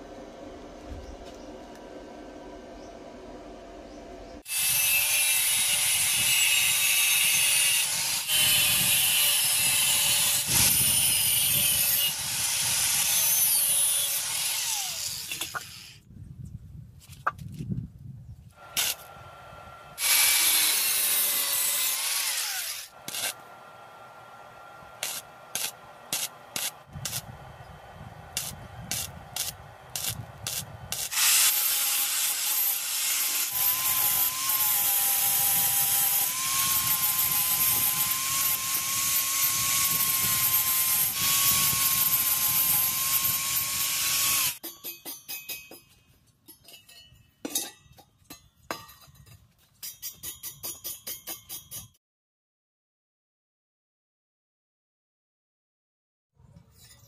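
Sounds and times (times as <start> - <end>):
angle grinder grinding steel: 4.4 - 16.0, 19.9 - 23.5, 24.7 - 27.2, 28.4 - 44.6.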